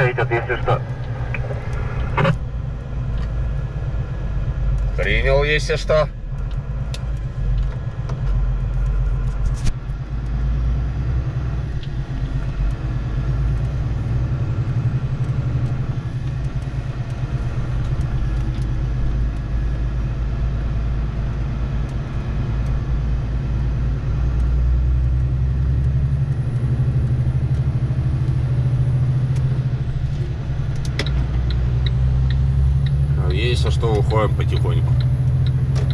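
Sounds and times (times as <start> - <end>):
diesel truck engine droning: 0.0 - 35.9.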